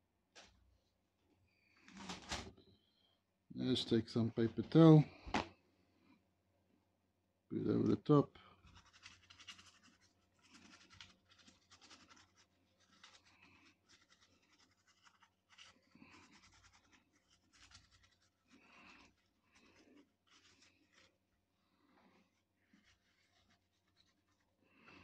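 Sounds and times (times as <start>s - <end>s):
paper towel rubbing: 8.6s - 25.0s.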